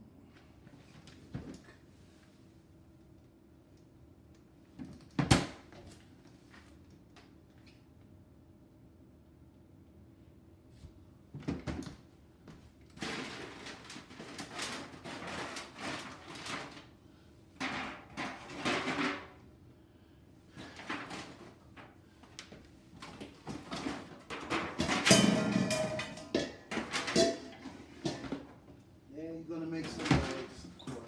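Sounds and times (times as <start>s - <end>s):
cookware clattering and knocking: 23.8s - 28.4s.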